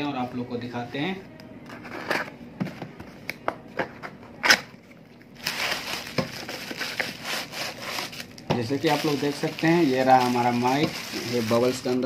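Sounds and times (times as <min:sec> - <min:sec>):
bubble wrap crinkling: 0:05.3 - 0:12.0
cardboard tearing: 0:05.4 - 0:12.0.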